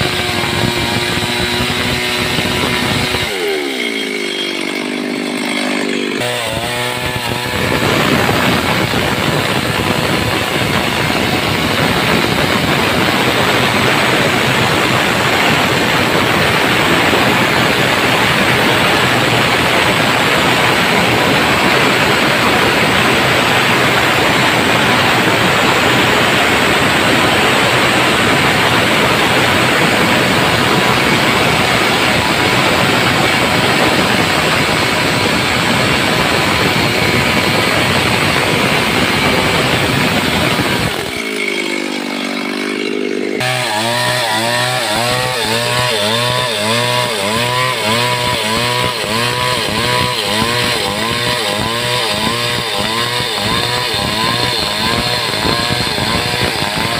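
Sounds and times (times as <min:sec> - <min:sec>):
chainsaw cutting through wood: 0:00.0 - 0:56.9.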